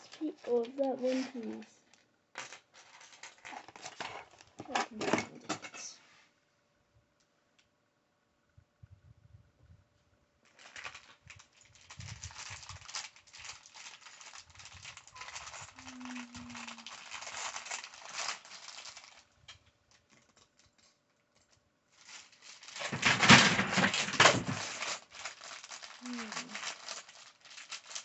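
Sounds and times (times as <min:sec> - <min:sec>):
plastic bag crinkling: 0:00.0 - 0:05.4, 0:10.4 - 0:21.0, 0:21.9 - 0:28.0.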